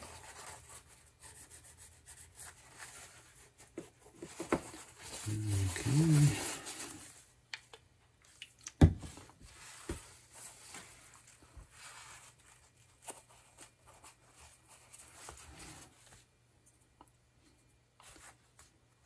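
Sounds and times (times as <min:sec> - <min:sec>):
paper towel rustling and crumpling: 0:02.4 - 0:07.4, 0:09.3 - 0:16.4.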